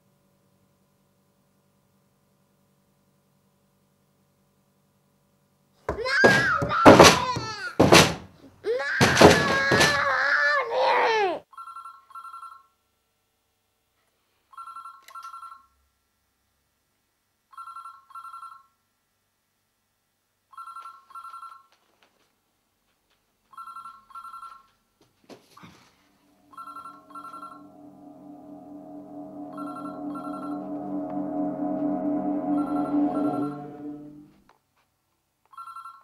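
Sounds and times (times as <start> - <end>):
low droning music: 26.2 - 34.4
falling whoosh: 26.3 - 34.3.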